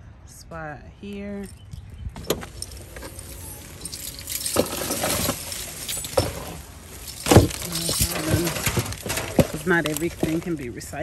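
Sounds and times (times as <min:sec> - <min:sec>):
recyclables clattering into bin: 0:02.2 - 0:10.7.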